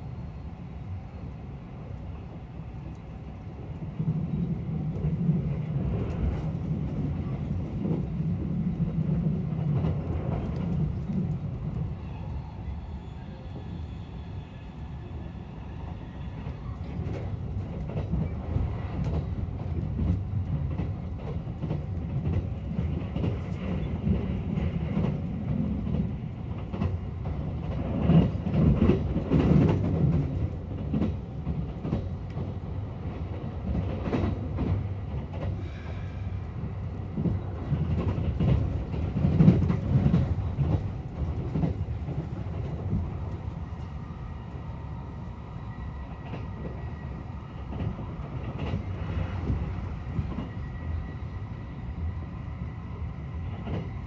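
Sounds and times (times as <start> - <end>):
train wheels rumbling on rail: 0.0 - 54.0
rail-joint clicks: 16.7 - 44.0, 47.6 - 50.7, 53.4 - 54.0.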